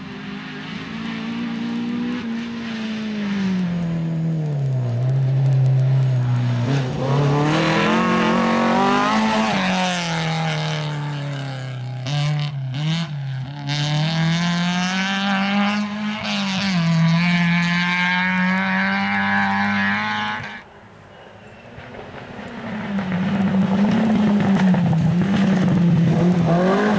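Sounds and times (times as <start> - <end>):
rally car engine revving: 0.0 - 20.6, 22.2 - 26.9
exhaust cracks: 0.8 - 13.5, 21.7 - 26.9.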